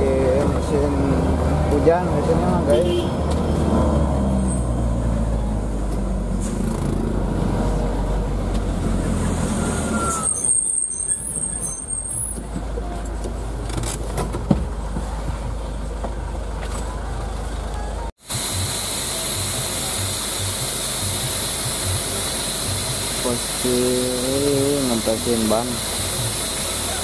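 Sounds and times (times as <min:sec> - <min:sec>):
diesel engine running: 0:14.7 - 0:27.0.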